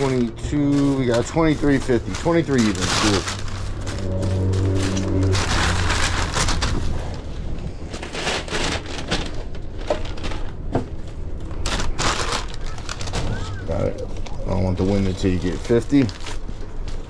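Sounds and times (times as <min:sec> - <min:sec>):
steady low hum: 0:00.0 - 0:11.7
paper bag rustling and crinkling: 0:00.0 - 0:17.0.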